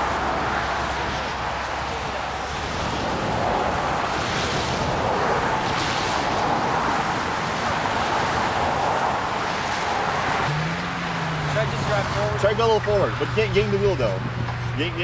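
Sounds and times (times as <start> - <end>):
highway traffic rushing: 0.0 - 15.0
wind: 0.0 - 15.0.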